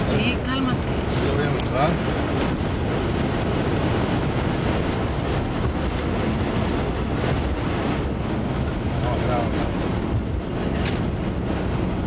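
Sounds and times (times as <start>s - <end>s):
tyre and road noise: 0.0s - 12.0s
wind against car: 0.0s - 12.0s.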